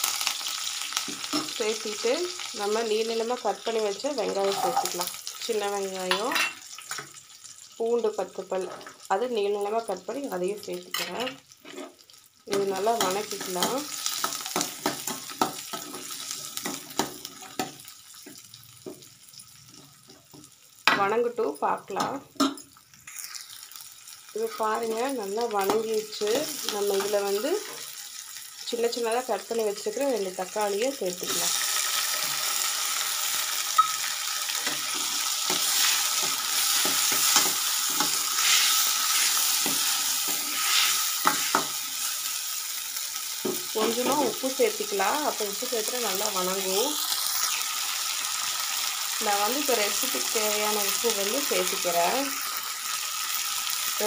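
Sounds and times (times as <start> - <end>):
shallots and garlic sizzling in oil: 0.0 - 54.0
metal spoon scraping a pan: 4.2 - 5.1, 10.9 - 17.8, 33.8 - 41.8.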